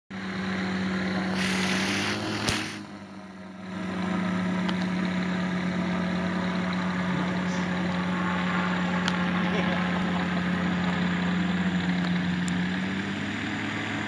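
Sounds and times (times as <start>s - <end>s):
engine humming: 0.1s - 14.0s
hissing noise: 1.2s - 3.0s
sharp click: 2.0s - 2.8s.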